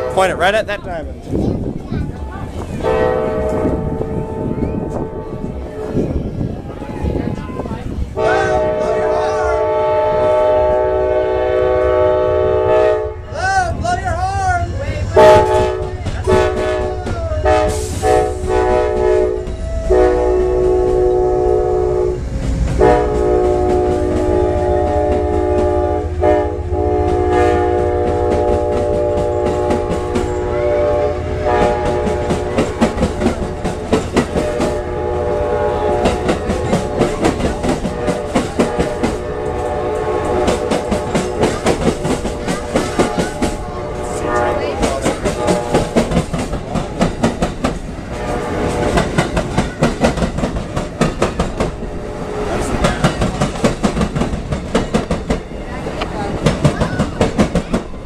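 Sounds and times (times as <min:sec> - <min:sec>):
locomotive air horn blasts: 0:02.8 - 0:06.0, 0:08.2 - 0:13.3, 0:15.2 - 0:22.2, 0:22.8 - 0:33.0, 0:34.3 - 0:37.0, 0:37.9 - 0:41.5, 0:43.3 - 0:46.0
train wheels clacking over rail joints: 0:22.3 - 0:58.0.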